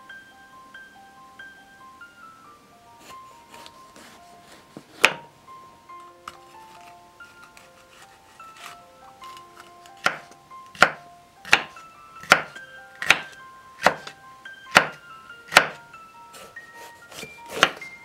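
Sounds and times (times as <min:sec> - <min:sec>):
light chiming melody: 0:00.0 - 0:18.0
knife chopping on wooden board: 0:04.9 - 0:05.3, 0:09.3 - 0:14.1, 0:14.7 - 0:15.8, 0:17.1 - 0:17.8.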